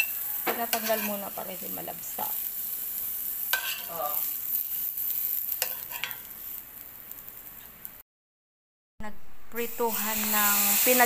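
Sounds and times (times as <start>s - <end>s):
metal spoon scraping a pan: 0.0s - 6.6s
garlic and oil sizzling in pan: 0.0s - 8.0s, 9.6s - 11.0s.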